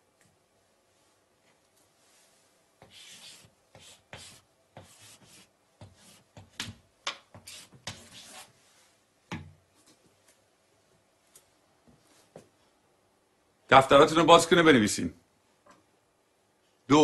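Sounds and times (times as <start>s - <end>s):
chalk scratching on blackboard: 2.8s - 8.6s.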